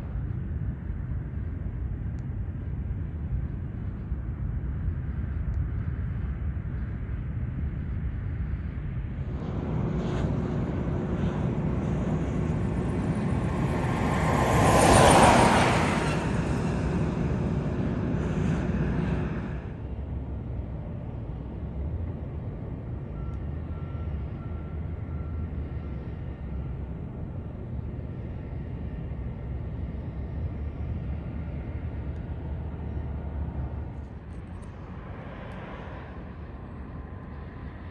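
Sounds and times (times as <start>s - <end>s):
low rumble: 0.0s - 24.5s
vehicle passing close by: 9.2s - 19.9s.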